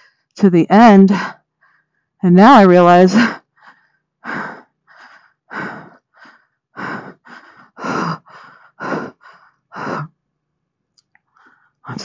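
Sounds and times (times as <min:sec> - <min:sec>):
person breathing heavily: 0:03.2 - 0:10.1.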